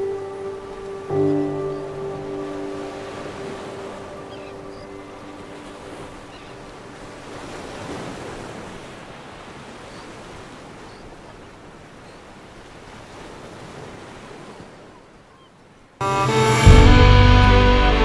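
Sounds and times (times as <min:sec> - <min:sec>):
background music: 0:00.0 - 0:05.6, 0:16.0 - 0:18.0
waves washing against rocky shore: 0:02.1 - 0:14.9.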